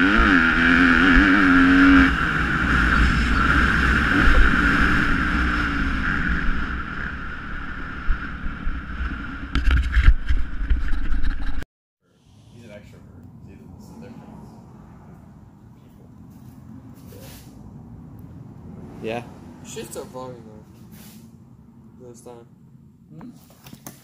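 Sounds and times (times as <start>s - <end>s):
dirt bike engine revving: 0.0s - 9.5s.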